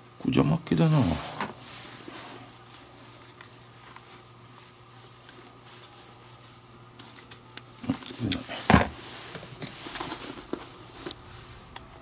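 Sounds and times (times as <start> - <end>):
low steady hum: 0.0 - 12.0
lace rustling and ticking: 2.0 - 8.5.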